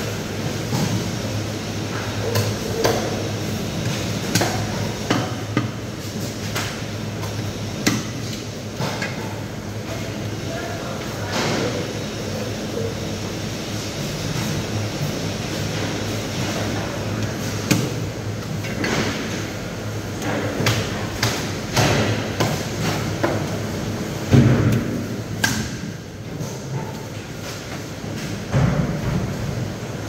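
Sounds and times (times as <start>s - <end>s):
steady background hum: 0.0s - 30.0s.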